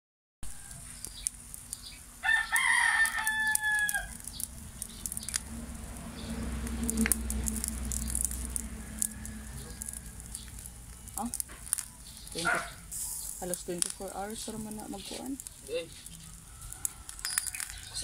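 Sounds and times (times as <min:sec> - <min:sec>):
rooster crowing: 0:00.4 - 0:01.1, 0:02.2 - 0:04.3, 0:05.4 - 0:11.2, 0:16.1 - 0:18.0
charcoal fire crackling: 0:00.4 - 0:18.0.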